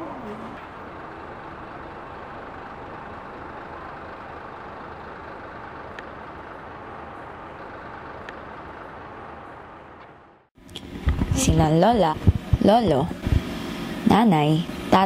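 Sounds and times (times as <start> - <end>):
buses and traffic: 0.0 - 15.0.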